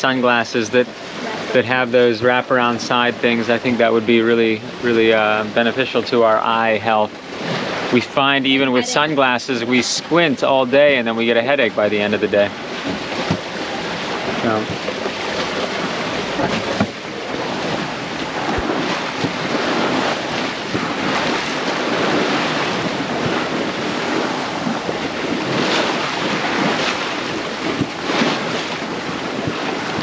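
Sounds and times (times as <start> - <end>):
water splashing along boat hull: 0.0 - 30.0
wind buffeting microphone: 7.1 - 30.0.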